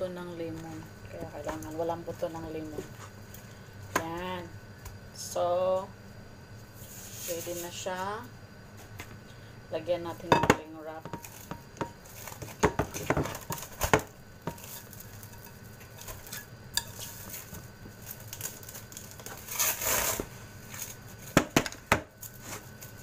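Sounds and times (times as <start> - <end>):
glass bowl knocking on metal counter: 10.3 - 11.2.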